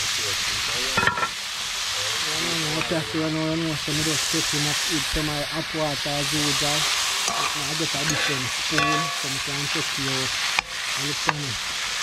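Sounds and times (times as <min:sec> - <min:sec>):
vegetables sizzling in oil: 0:00.0 - 0:12.0
metal spoon scraping pan: 0:06.8 - 0:09.5
spoon clinking on pan: 0:07.3 - 0:09.4.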